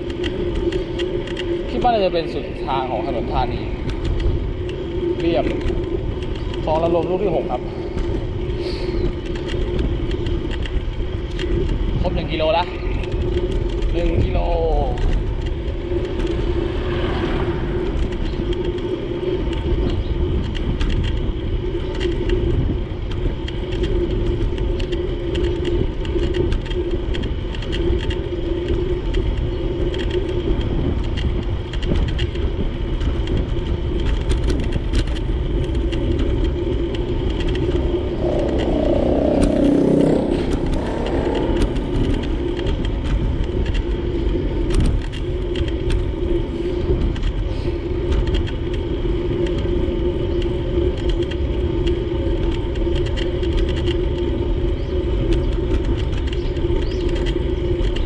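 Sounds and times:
street traffic rumble: 0:00.0 - 0:58.0
vehicle passing close: 0:15.4 - 0:19.2, 0:36.9 - 0:43.8.

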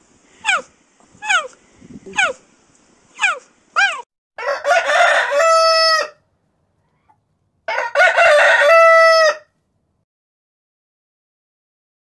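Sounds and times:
rooster crowing: 0:03.8 - 0:06.2, 0:07.7 - 0:09.5.

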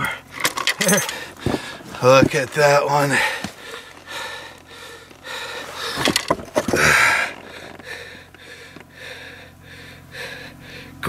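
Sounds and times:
person breathing loudly: 0:03.1 - 0:11.0.

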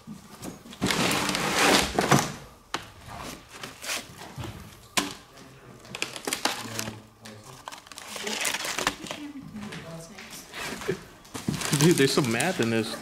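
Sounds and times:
scraping and rustling junk: 0:00.0 - 0:02.4, 0:05.9 - 0:13.0.

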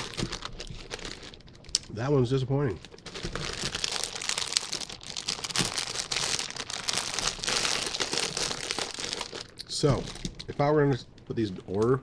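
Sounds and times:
chip bag crinkling: 0:00.0 - 0:02.0, 0:02.7 - 0:10.7.

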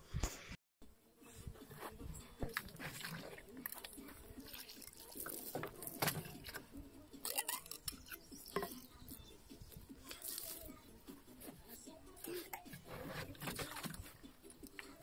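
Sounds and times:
water trickling: 0:02.4 - 0:09.2.

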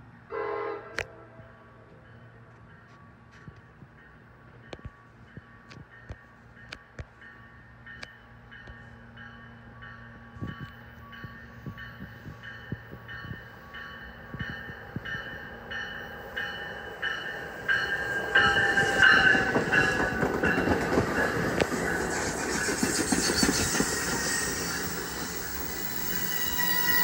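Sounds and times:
train rumbling past: 0:00.0 - 0:27.0
crossing bell ringing: 0:02.0 - 0:22.2, 0:23.0 - 0:27.0
wheel squeal: 0:22.0 - 0:27.0.

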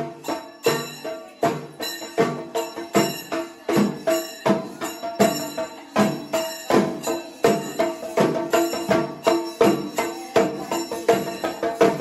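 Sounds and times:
rhythmic percussion music with bells: 0:00.0 - 0:12.0.

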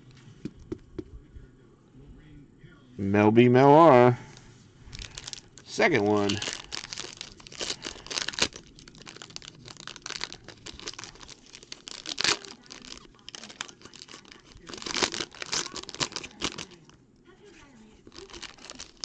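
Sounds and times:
foil pack crinkling and tearing: 0:04.9 - 0:17.0, 0:17.9 - 0:19.0.

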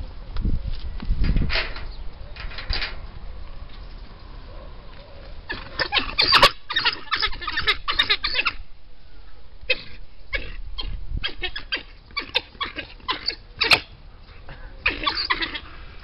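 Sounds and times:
wild dogs yelping and chirping: 0:03.3 - 0:16.0.

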